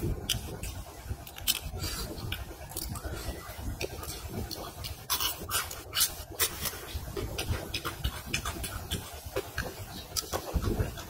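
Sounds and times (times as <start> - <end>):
crunching and chewing fried crabs: 0.0 - 11.0
crab shells cracking: 1.2 - 1.7.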